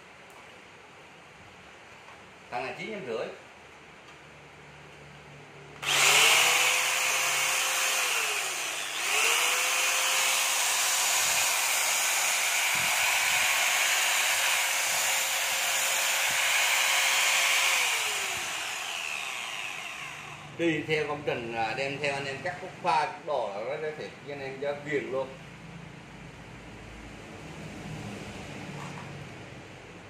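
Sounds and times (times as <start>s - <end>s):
chainsaw cutting wood: 5.8s - 20.5s
electric chainsaw motor: 5.8s - 20.9s.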